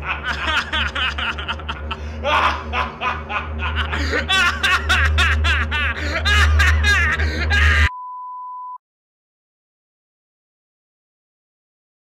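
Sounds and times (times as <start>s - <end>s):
men laughing loudly: 0.0s - 7.9s
music with low bass drone: 0.0s - 7.9s
short electronic beep: 7.9s - 8.8s.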